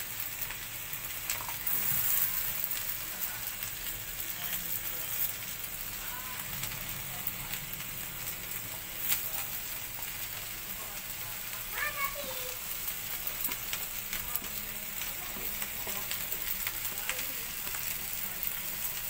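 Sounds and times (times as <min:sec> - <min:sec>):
food sizzling on a grill: 0:00.0 - 0:19.0.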